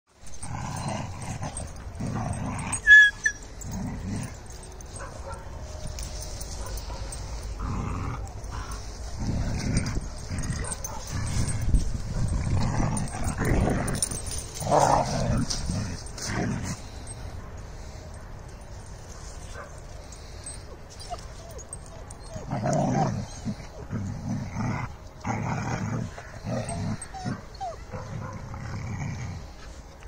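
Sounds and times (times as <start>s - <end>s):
dogs growling and scuffling: 0.1s - 30.0s
dog yelping: 2.6s - 3.6s, 21.0s - 23.8s, 26.0s - 28.1s.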